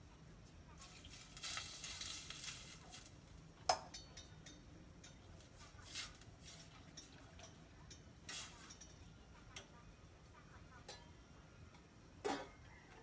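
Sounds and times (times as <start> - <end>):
chopsticks stirring in pot: 4.0 - 9.7.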